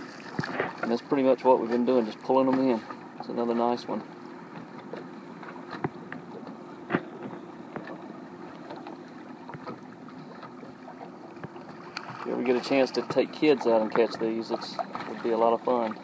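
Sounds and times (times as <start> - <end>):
lake water lapping: 0.0 - 16.0
wind: 0.0 - 16.0
light clicks and knocks: 4.5 - 10.8.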